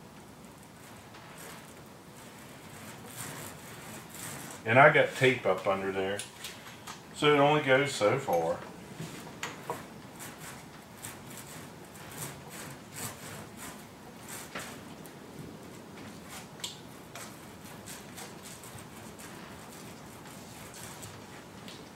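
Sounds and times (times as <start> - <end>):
brush scratching strokes: 0.8 - 21.9.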